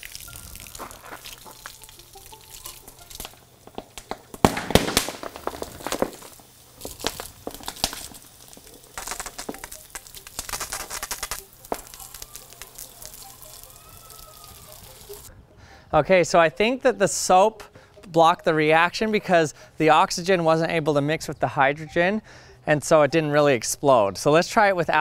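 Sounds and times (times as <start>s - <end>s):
sharp pops and crackles: 0.0s - 15.3s
sizzling hiss: 0.0s - 15.3s.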